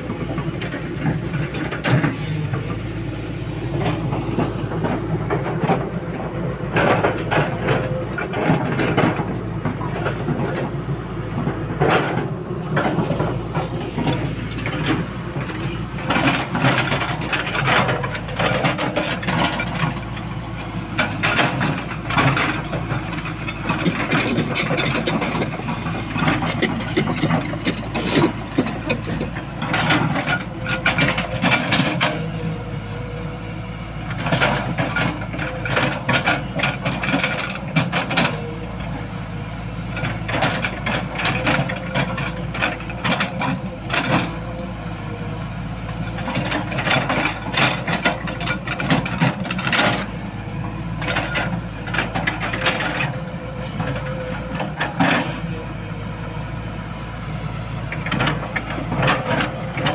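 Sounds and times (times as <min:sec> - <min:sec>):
excavator diesel engine running: 0:00.0 - 0:59.9
steel bucket scraping soil: 0:23.4 - 0:29.4.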